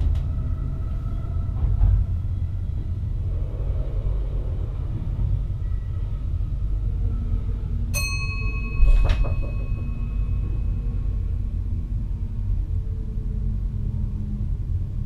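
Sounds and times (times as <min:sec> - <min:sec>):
train running rumble: 0:00.0 - 0:15.0
single ding: 0:08.0 - 0:10.5.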